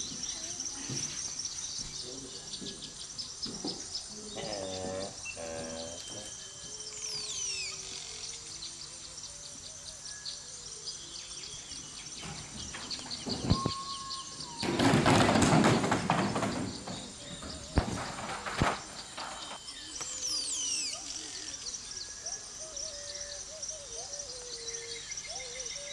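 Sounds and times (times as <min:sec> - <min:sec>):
bird chirps: 0:00.0 - 0:15.5, 0:16.2 - 0:25.9
high insect drone: 0:00.0 - 0:25.9
falling whistled bird call: 0:12.2 - 0:25.9
rough noise with rapid knocks: 0:14.6 - 0:19.6.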